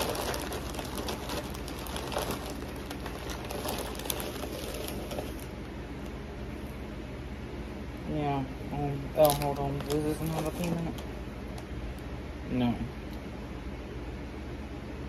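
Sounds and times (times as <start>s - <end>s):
popcorn packaging rustling: 0.0s - 6.1s, 9.1s - 11.7s
steady low hum: 0.0s - 15.0s.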